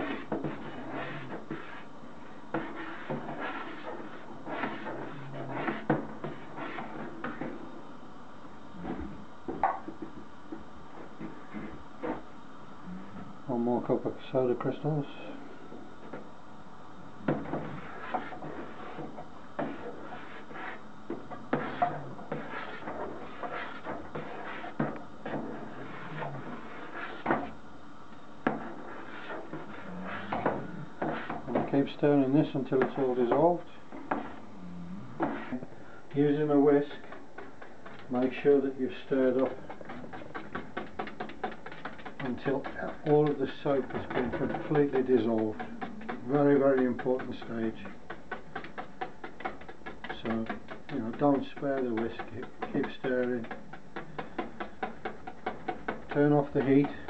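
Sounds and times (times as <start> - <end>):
stirring hot soapy liquid: 0.0 - 7.8, 17.3 - 27.6, 28.4 - 34.5, 35.2 - 57.0
steady hiss: 0.0 - 57.0
utensil knocking against pot: 39.3 - 57.0.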